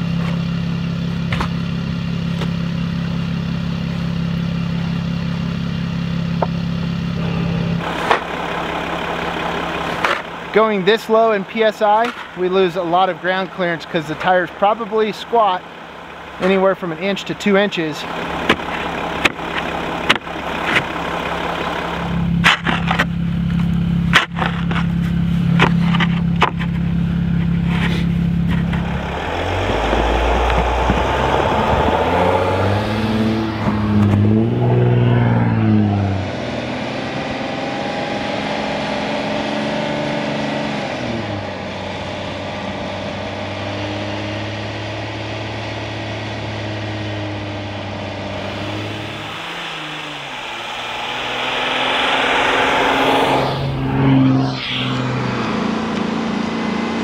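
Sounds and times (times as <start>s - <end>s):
van diesel engine revving: 0.0s - 57.0s
traction boards knocking and scraping: 22.4s - 26.9s.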